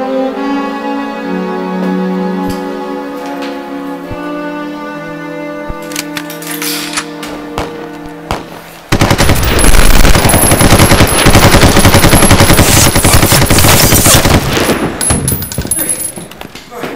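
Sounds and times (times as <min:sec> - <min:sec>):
automatic rifle fire: 0:08.3 - 0:15.7.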